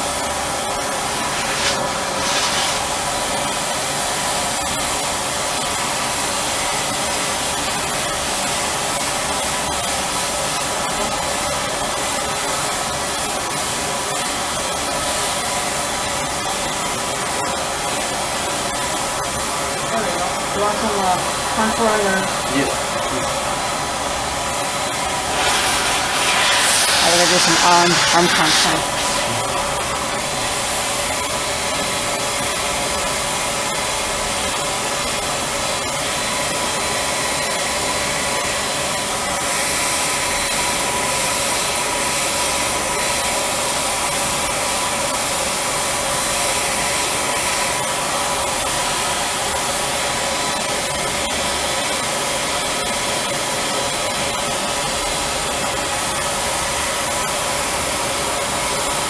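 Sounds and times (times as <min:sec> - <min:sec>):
spray machine hissing air: 0:01.0 - 0:03.7, 0:25.2 - 0:29.7.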